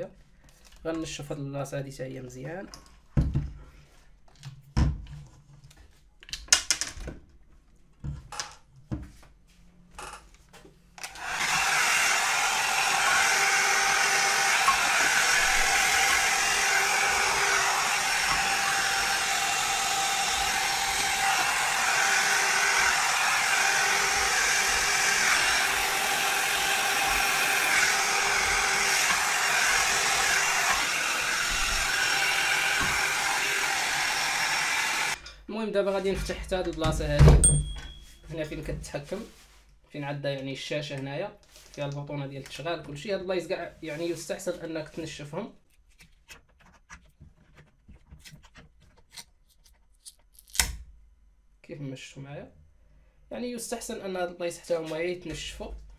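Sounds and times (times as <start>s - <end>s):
hair dryer blowing: 11.0s - 35.2s.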